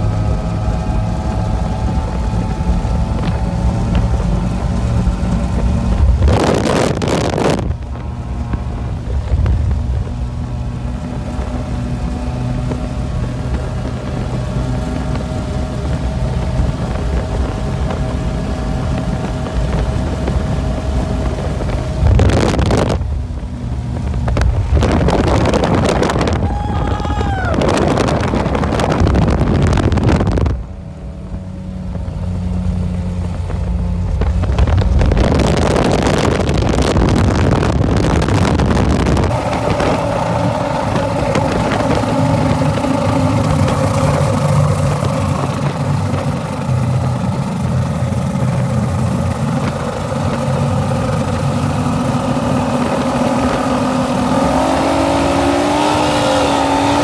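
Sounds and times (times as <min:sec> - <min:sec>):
outboard engines droning: 0:00.0 - 0:57.0
wind noise on microphone: 0:00.0 - 0:57.0.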